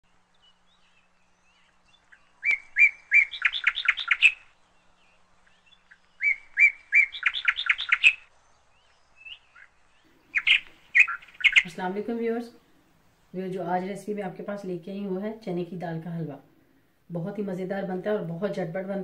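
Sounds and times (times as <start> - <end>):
bird chirping: 0.1 - 13.9.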